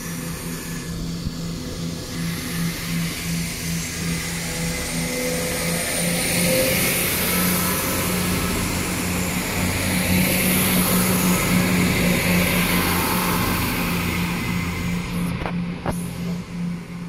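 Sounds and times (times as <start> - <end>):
diesel train engine drone: 0.0 - 17.0
wheel and rail noise: 0.0 - 17.0.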